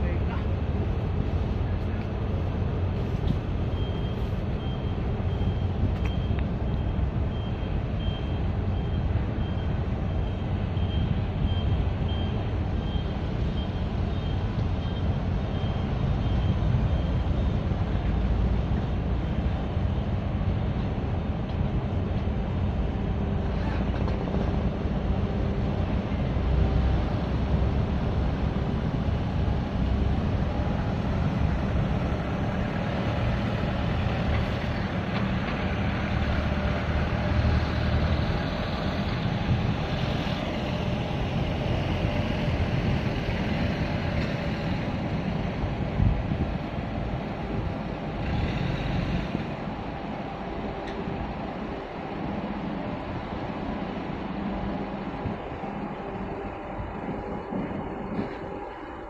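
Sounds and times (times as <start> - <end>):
heavy engine rumble: 0.0 - 59.0
reversing beeper: 3.7 - 17.4.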